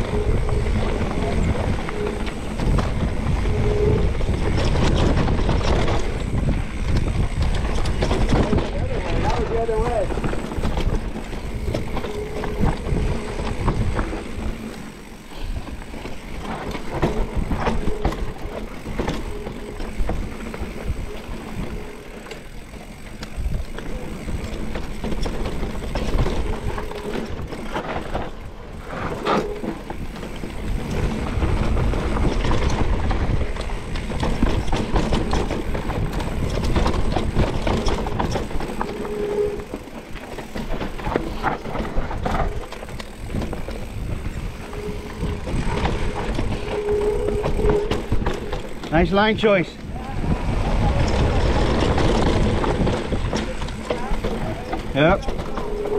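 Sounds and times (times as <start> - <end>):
wind on microphone: 0.0 - 15.8, 40.7 - 48.9, 49.8 - 55.9
bike rattling over bumps: 0.0 - 55.9
tyres on dirt: 0.0 - 55.9.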